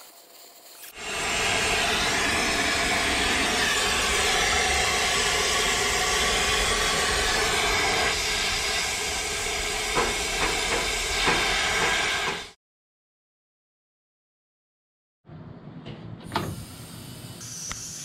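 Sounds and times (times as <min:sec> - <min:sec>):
torch flame hissing: 0:00.0 - 0:12.6.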